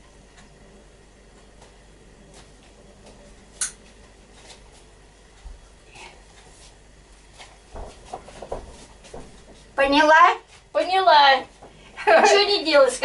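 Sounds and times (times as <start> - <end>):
soft knocks and rustles: 6.3 - 9.8.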